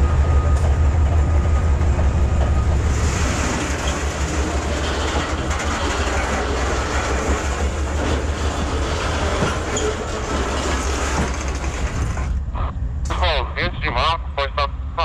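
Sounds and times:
train wagons rolling on rails: 0.0 - 13.4.

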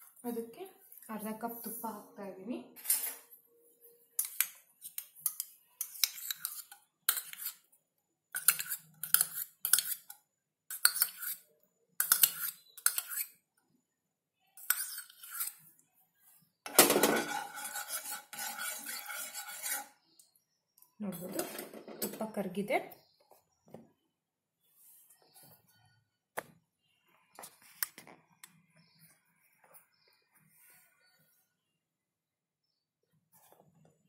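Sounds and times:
spoon clinking and scraping pan: 4.2 - 7.7, 8.3 - 11.4, 12.0 - 13.4, 14.6 - 15.6, 16.7 - 20.0.

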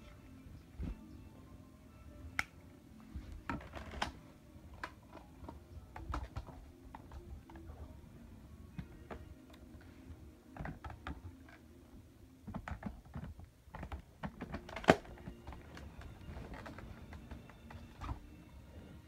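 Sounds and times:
plastic parts clicking and rattling: 12.4 - 18.2.

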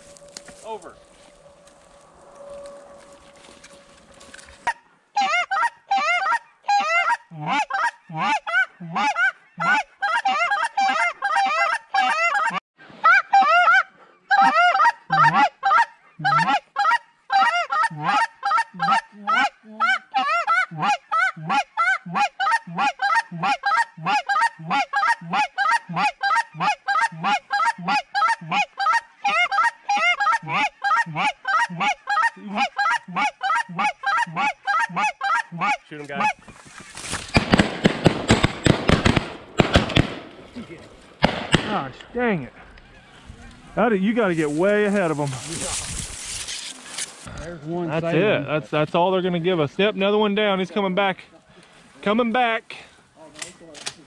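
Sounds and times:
geese honking: 0.0 - 37.0, 39.6 - 45.6.

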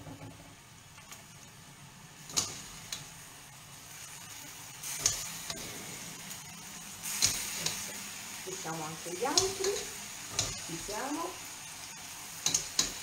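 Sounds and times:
food sizzling in a frying pan: 0.4 - 13.0
metal utensil clinking on pan: 12.4 - 13.0.

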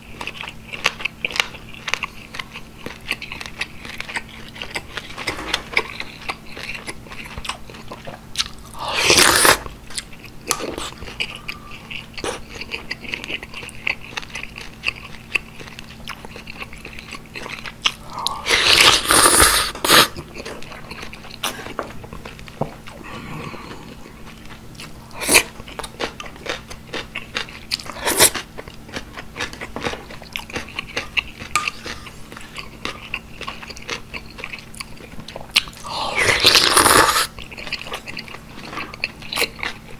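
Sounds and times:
wet chewing: 0.2 - 39.9
slurping noodles: 8.8 - 9.7, 18.2 - 20.2, 27.9 - 28.4, 35.8 - 37.3.

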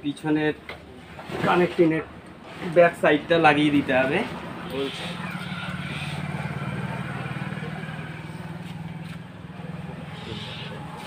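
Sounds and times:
low pulsing engine drone: 4.6 - 11.0.

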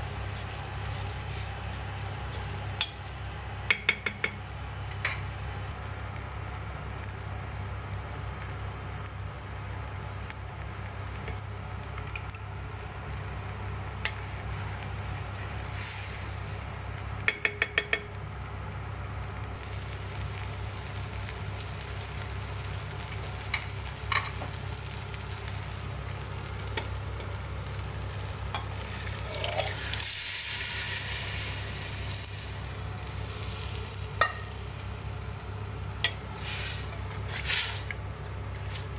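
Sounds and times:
food sizzling in a pot: 0.0 - 4.5, 5.6 - 38.9.

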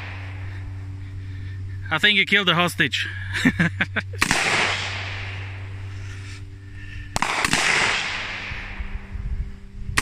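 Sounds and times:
rifle shots with echo: 4.2 - 5.6, 7.1 - 8.8.

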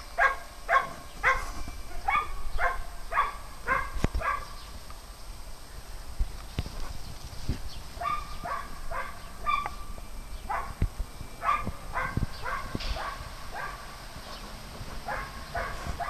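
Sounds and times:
small dogs yipping: 0.2 - 4.6, 8.0 - 9.8, 10.5 - 10.8, 11.4 - 13.9, 15.0 - 16.0.

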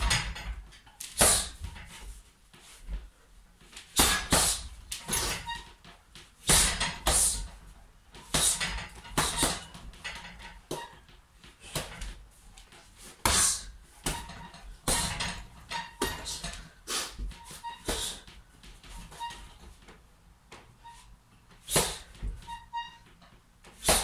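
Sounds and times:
punches on heavy bag: 1.2 - 1.6, 4.0 - 5.4, 6.4 - 7.4, 13.2 - 15.4, 21.7 - 22.2, 23.8 - 24.0.

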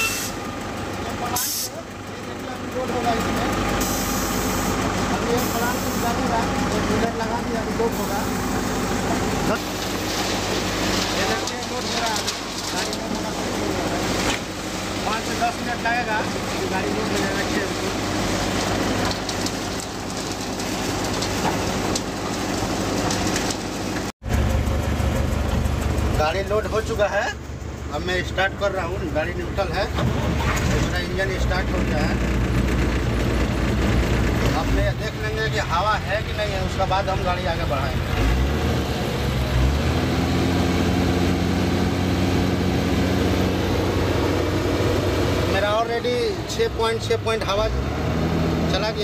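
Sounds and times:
diesel engine idling: 0.0 - 23.1, 23.7 - 49.0
deep machine rumble: 0.0 - 46.4
machinery rumble: 0.0 - 47.8
concrete pouring down chute: 2.8 - 24.1.

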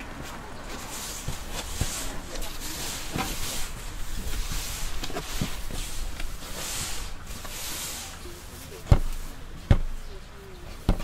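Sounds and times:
hands rubbing dough: 0.0 - 11.0
dough thudding on board: 8.8 - 10.0, 10.8 - 11.0.

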